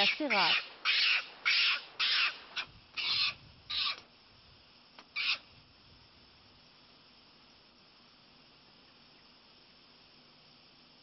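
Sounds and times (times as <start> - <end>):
macaque harsh calls: 0.0 - 4.0, 5.1 - 5.5.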